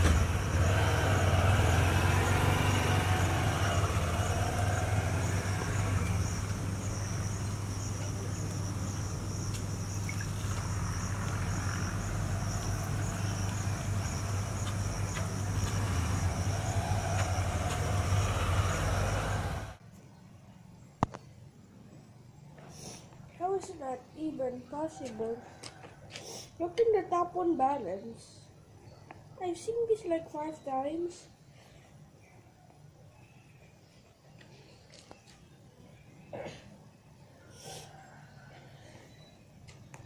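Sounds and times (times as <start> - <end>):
insect chirping: 0.0 - 19.8.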